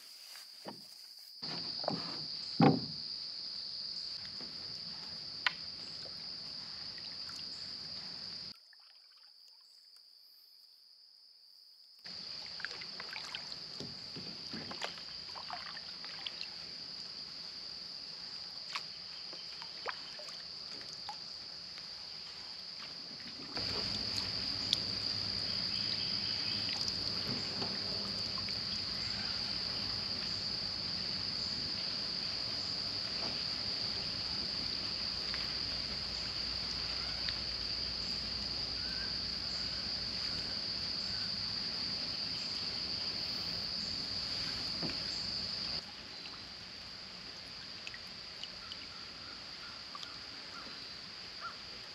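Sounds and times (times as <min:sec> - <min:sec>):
light knocks on boat: 0:01.4 - 0:03.0
paddle dipping and dripping: 0:04.2 - 0:10.1, 0:12.1 - 0:17.6, 0:18.2 - 0:31.3, 0:31.9 - 0:43.3, 0:47.2 - 0:50.6.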